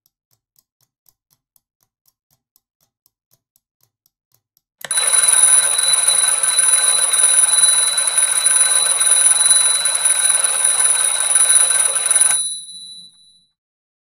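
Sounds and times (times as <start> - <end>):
alarm clock bells ringing: 4.9 - 13.4.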